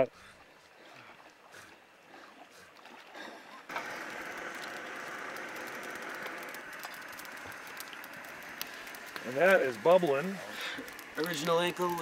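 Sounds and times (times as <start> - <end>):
camping stove burner hissing: 3.7 - 12.0.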